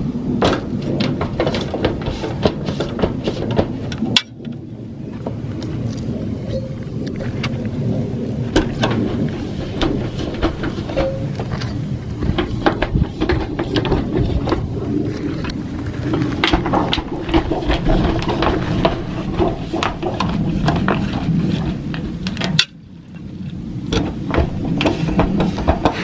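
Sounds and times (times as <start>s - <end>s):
hand seamer rolling with clicks: 0.4s - 4.6s, 8.5s - 14.7s, 15.4s - 22.8s, 23.9s - 26.0s.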